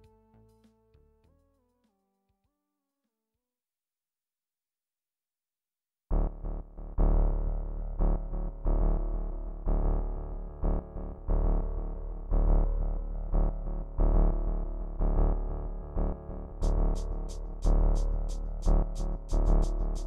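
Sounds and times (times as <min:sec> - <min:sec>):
instrumental music with bass chords: 0:06.1 - 0:20.0.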